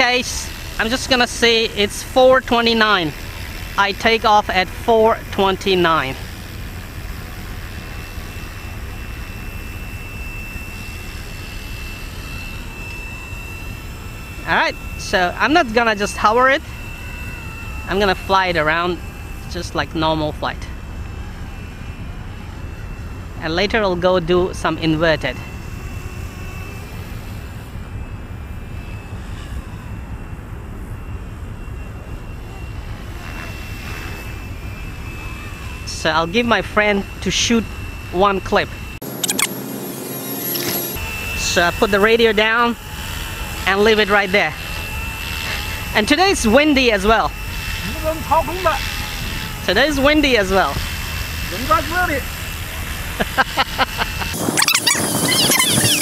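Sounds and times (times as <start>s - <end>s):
rc helicopter rotor whine: 0.0s - 56.0s
wind on microphone: 54.2s - 56.0s.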